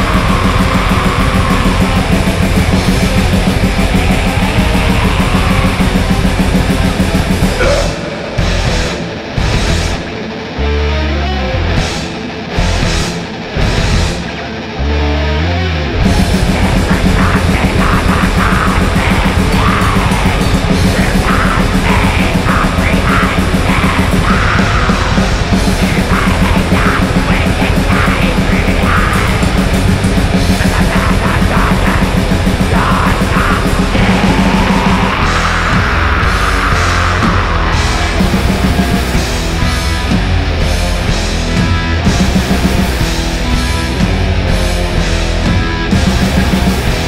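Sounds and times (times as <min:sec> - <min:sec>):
fast dense drumming: 0:00.0 - 0:10.2, 0:11.8 - 0:14.2, 0:16.0 - 0:47.0
harsh yelled vocals: 0:00.0 - 0:10.3, 0:16.0 - 0:47.0
distorted guitars: 0:00.0 - 0:47.0.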